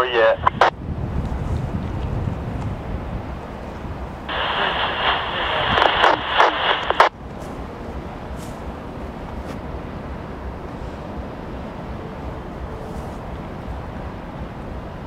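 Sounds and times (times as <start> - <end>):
hissy garbled radio transmission: 0.0 - 0.8, 4.3 - 7.1
low steady rumble: 0.0 - 15.0.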